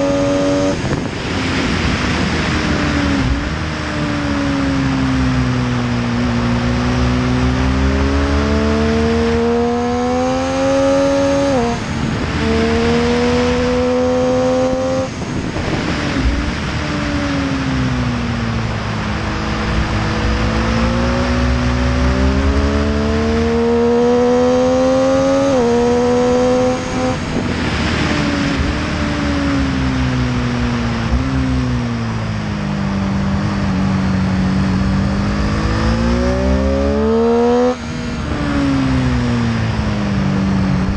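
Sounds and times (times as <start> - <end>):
motorcycle engine accelerating: 0.0 - 40.9
road rush: 0.0 - 40.9
wind rushing: 10.0 - 17.0, 24.9 - 29.6.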